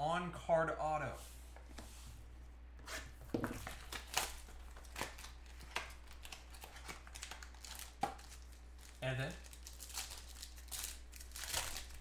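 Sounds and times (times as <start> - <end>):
card pack wrapper crinkling: 3.6 - 12.0.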